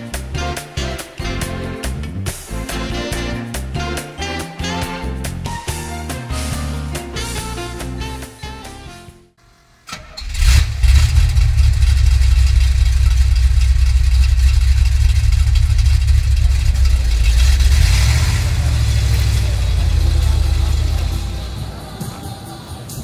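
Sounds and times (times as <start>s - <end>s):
car engine starting and running: 9.8s - 22.0s.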